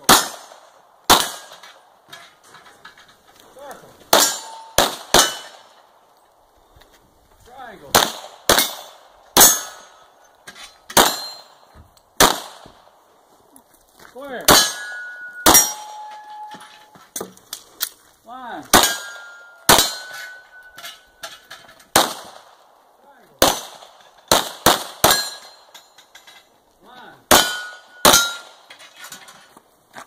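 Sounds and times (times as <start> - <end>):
handgun shots: 0.0 - 1.6, 4.1 - 5.6, 10.9 - 11.5, 18.7 - 20.2, 23.4 - 25.5
steel target clang: 0.0 - 1.8, 4.1 - 5.6, 8.0 - 10.0, 10.9 - 12.4, 14.5 - 17.0, 18.7 - 22.2, 24.7 - 26.2, 27.3 - 28.9.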